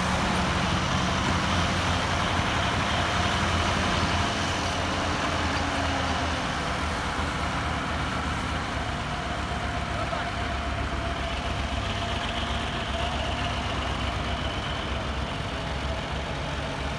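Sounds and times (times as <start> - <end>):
tractor diesel engines droning: 0.0 - 16.9.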